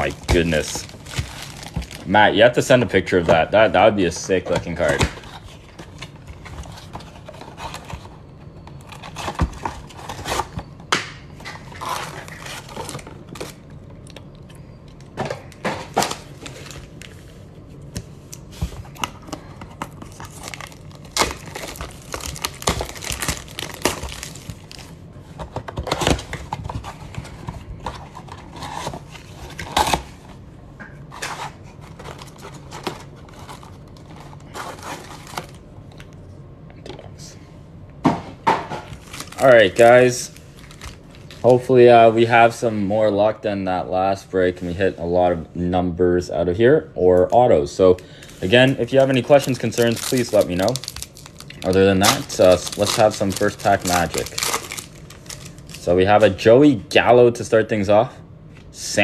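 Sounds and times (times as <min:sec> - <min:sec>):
foil packs crinkling: 0:00.0 - 0:08.1, 0:11.5 - 0:13.6, 0:19.8 - 0:24.9, 0:38.9 - 0:41.7, 0:48.1 - 0:56.0
cardboard tearing: 0:20.2 - 0:24.5, 0:49.4 - 0:55.6.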